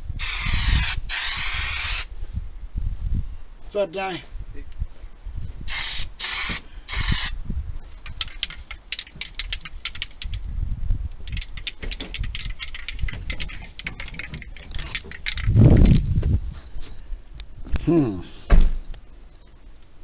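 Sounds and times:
aerosol can spraying hiss: 0:00.2 - 0:02.1, 0:05.7 - 0:07.4
mixing ball rattling in can: 0:11.3 - 0:15.8.

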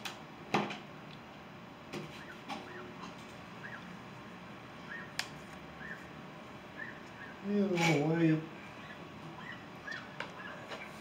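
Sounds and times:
small bird chirping: 0:02.2 - 0:03.0, 0:03.6 - 0:04.0, 0:04.8 - 0:05.2, 0:05.8 - 0:06.1, 0:06.7 - 0:07.5, 0:08.6 - 0:11.0.

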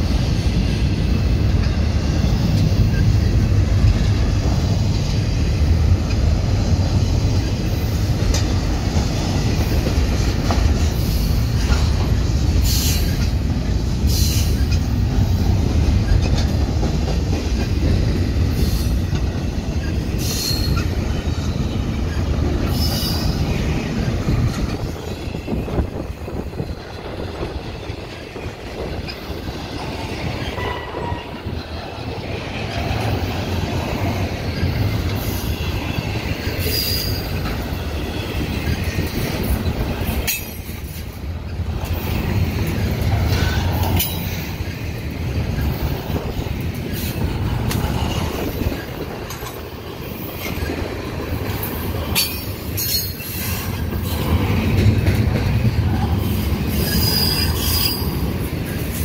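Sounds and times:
train wheels rumbling on rails: 0:00.0 - 0:59.0
high-pitched wheel squeals: 0:56.7 - 0:58.2.

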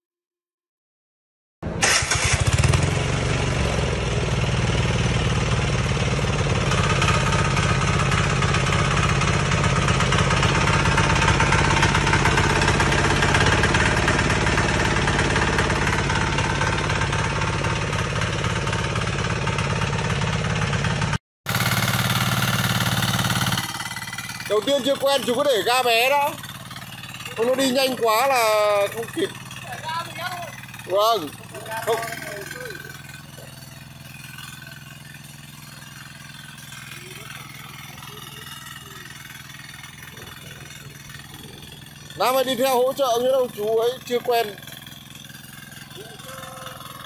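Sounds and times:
tiller diesel engine running: 0:01.6 - 0:47.0.

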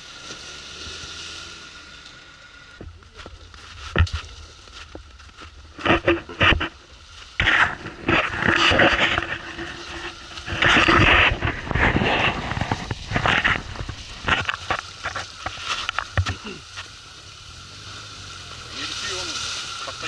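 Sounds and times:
car engine running: 0:00.0 - 0:20.0
water splashing from wheels: 0:06.3 - 0:20.0.

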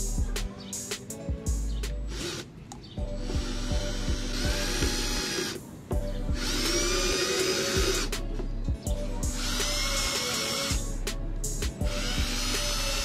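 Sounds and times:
background music with steady beat: 0:00.0 - 0:13.0
electric drill whining: 0:02.1 - 0:02.6, 0:03.2 - 0:05.6, 0:06.4 - 0:08.1, 0:09.3 - 0:10.8, 0:11.8 - 0:13.0.

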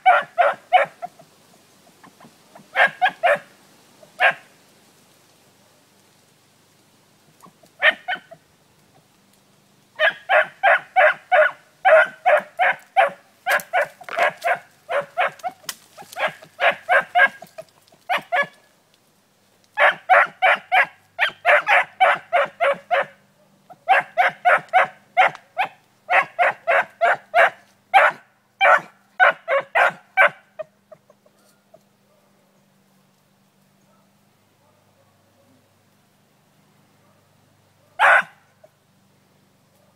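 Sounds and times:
beagle baying: 0:00.0 - 0:01.2, 0:02.1 - 0:03.5, 0:07.5 - 0:08.4, 0:10.0 - 0:18.6, 0:19.8 - 0:32.4, 0:37.8 - 0:38.7.

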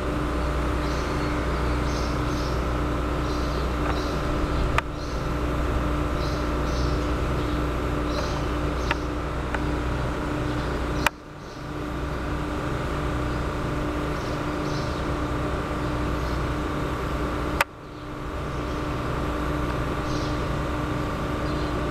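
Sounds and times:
faint hum: 0:00.0 - 0:21.9
low rumble: 0:02.9 - 0:10.2
sharp clicks: 0:08.1 - 0:09.7.

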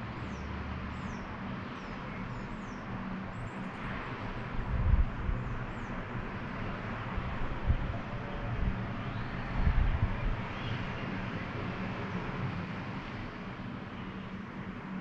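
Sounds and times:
distant traffic hum: 0:00.0 - 0:15.0
wind buffeting microphone: 0:03.1 - 0:13.9.

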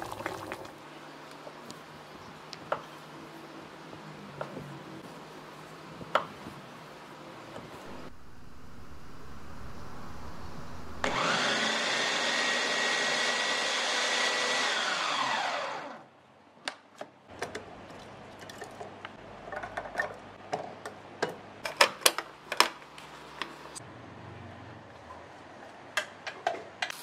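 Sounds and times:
food chopper motor whining: 0:07.8 - 0:16.1.

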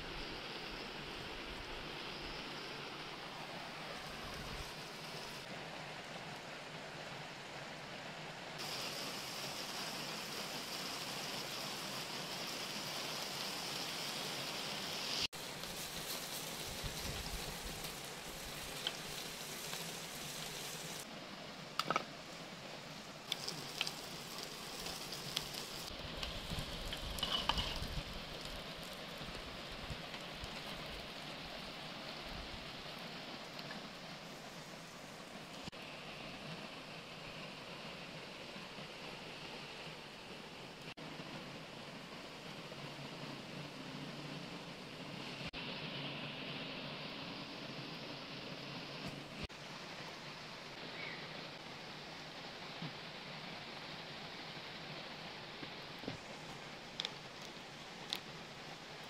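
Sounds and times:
chicken sizzling in a pan: 0:08.6 - 0:21.1, 0:23.2 - 0:33.7
sharp clicks and pops: 0:21.8 - 0:22.1.

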